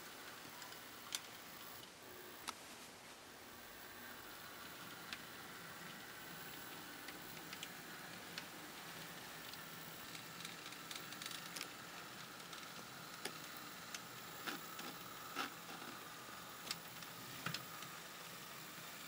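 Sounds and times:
faint steady hum: 0.0s - 19.0s
model train cars clicking over rails: 3.8s - 19.0s.

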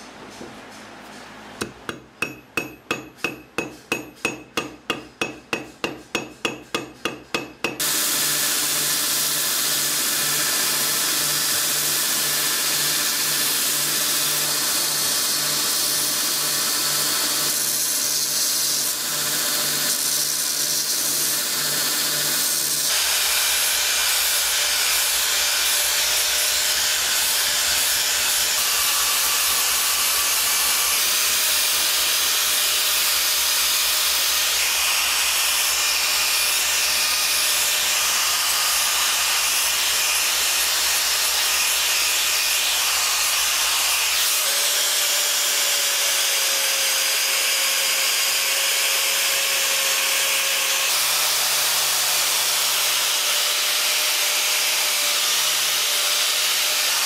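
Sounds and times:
hammer taps with metallic ring: 1.6s - 7.8s
angle grinder grinding steel: 1.9s - 57.0s
belt grinder running: 2.2s - 57.0s.

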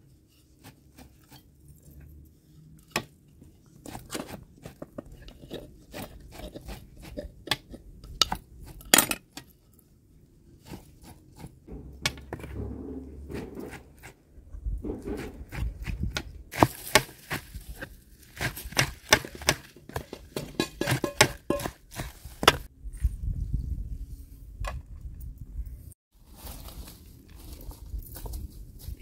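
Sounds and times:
wooden mortar and pestle knocking: 11.7s - 14.2s, 18.7s - 22.7s.

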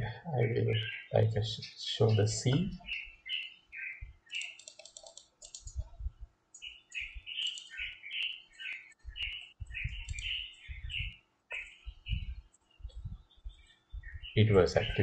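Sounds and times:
computer mouse clicking: 4.3s - 8.4s, 9.2s - 10.5s
low thumps: 11.9s - 14.3s.

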